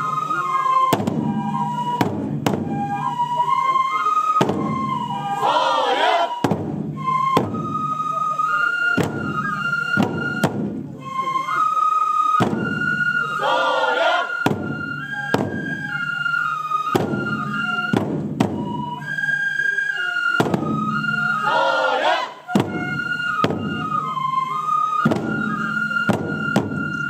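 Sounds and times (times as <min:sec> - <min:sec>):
flute melody: 0:00.0 - 0:27.0
large drums striking: 0:00.9 - 0:01.4, 0:02.0 - 0:02.8, 0:06.4 - 0:07.7, 0:10.0 - 0:10.9, 0:12.4 - 0:12.9, 0:14.4 - 0:15.6, 0:17.0 - 0:18.8, 0:22.6 - 0:23.8, 0:26.1 - 0:26.9
voices calling out: 0:05.0 - 0:06.4, 0:13.2 - 0:14.5, 0:20.9 - 0:22.5.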